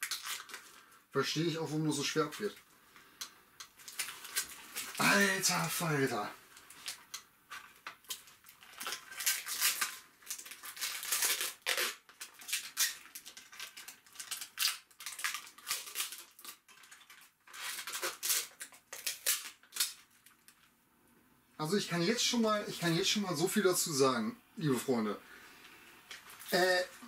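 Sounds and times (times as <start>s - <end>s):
plastic film crinkling: 0.0s - 2.7s, 3.6s - 20.7s, 26.0s - 27.0s.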